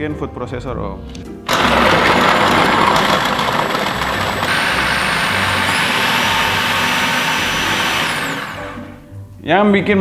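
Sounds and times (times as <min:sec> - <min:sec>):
food processor chopping: 0:01.5 - 0:09.0.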